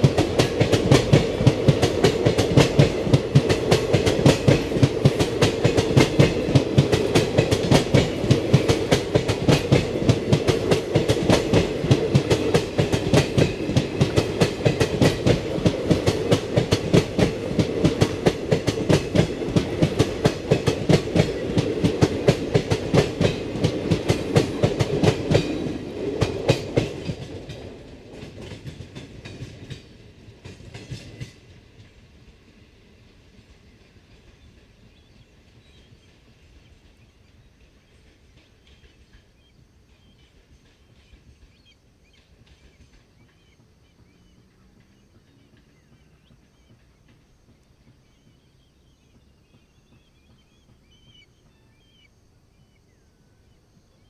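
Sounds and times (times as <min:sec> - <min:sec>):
train wheels clattering on rails: 0:00.0 - 0:52.1.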